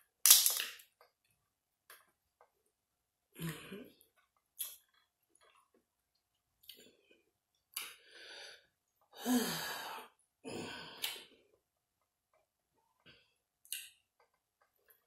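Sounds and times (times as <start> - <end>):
person sighing while eating: 9.2 - 11.2
mouth clicks: 13.6 - 14.0.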